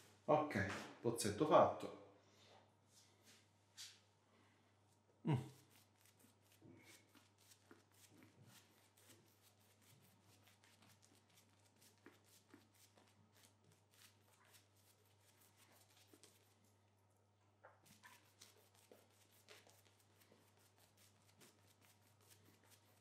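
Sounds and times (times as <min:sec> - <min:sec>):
shaving brush strokes: 0:05.4 - 0:16.8, 0:17.8 - 0:23.0.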